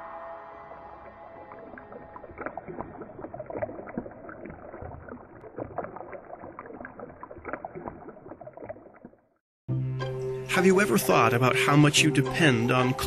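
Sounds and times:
water splashing and gurgling: 0.4 - 9.4.

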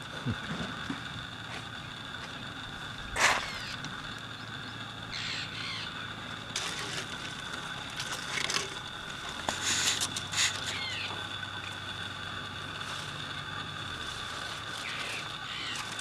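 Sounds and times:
steady high-pitched drone: 0.0 - 16.0
harsh crow-like bird calls: 3.2 - 6.3, 9.7 - 11.4, 14.6 - 16.0.

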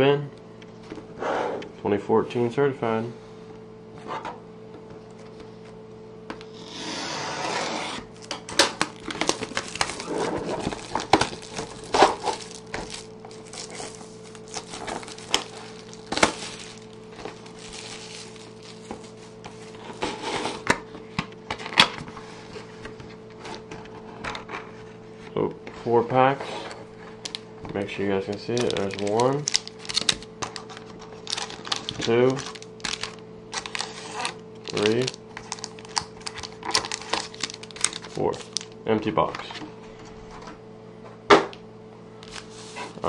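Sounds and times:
plastic shrink-wrap tearing: 8.1 - 19.8, 28.4 - 38.8
plastic film crinkling: 8.1 - 20.0, 28.3 - 38.8.

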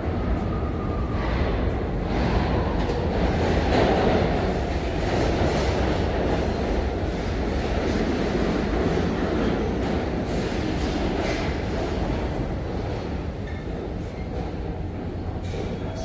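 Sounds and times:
subway train running: 0.0 - 16.0.

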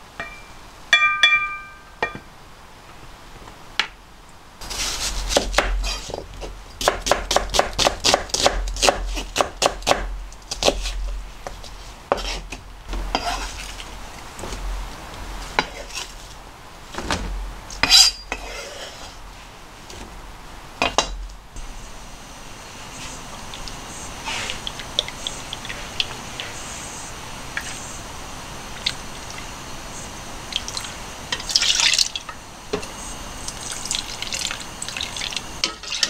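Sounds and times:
slices scraped across board: 11.6 - 12.5, 13.1 - 13.8, 17.8 - 19.2.

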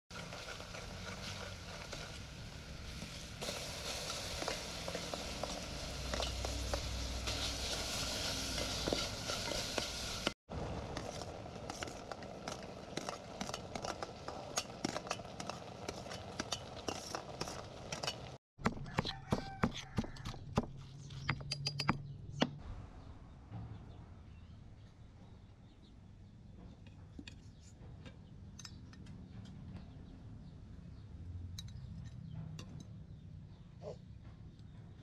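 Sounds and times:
oil sizzling in a pot: 0.1 - 18.4
metal spoon scraping a pot: 11.0 - 18.4.

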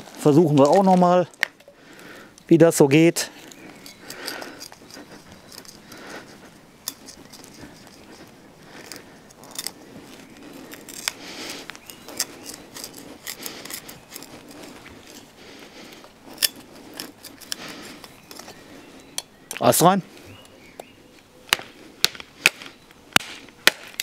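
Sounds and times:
knife tip scraping and rasping: 3.5 - 15.3, 16.3 - 19.3.

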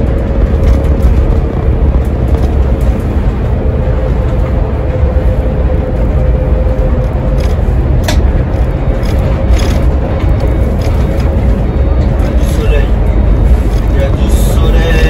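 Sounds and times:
bus engine and road rumble: 0.0 - 15.0
steady whine: 0.0 - 15.0.

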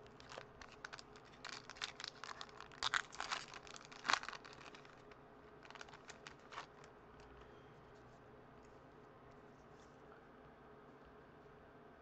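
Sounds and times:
foil wrapper crinkling and tearing: 0.0 - 6.9.

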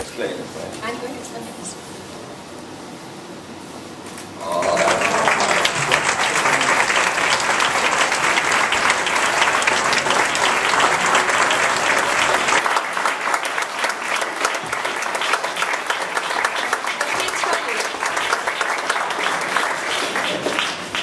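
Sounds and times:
audience applauding: 4.4 - 21.0.

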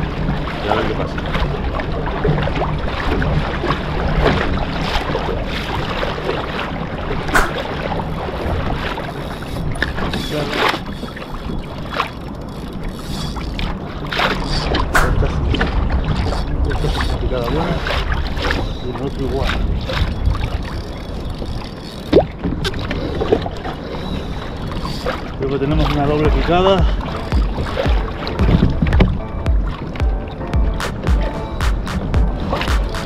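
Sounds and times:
water splashing against hull: 0.0 - 33.0
wind rumble on microphone: 0.0 - 33.0
sharp knocks: 7.3 - 7.7, 14.9 - 15.4, 26.3 - 33.0.

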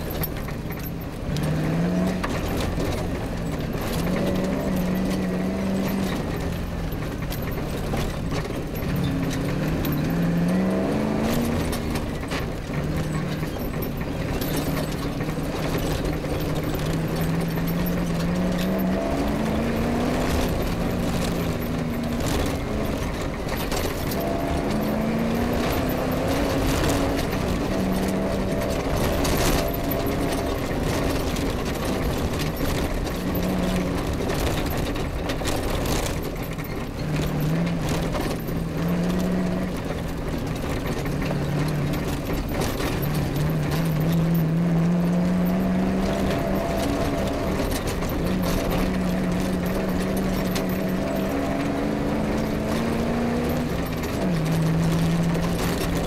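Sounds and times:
rally car engine revving: 0.0 - 56.0
road and chassis noise: 0.0 - 56.0.

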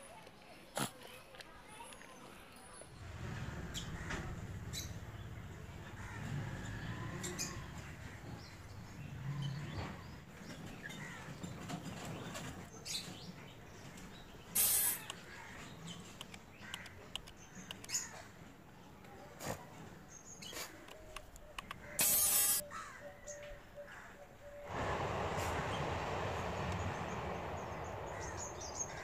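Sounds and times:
birds calling: 2.9 - 18.4, 20.0 - 29.0
loud rustle: 24.7 - 29.0.

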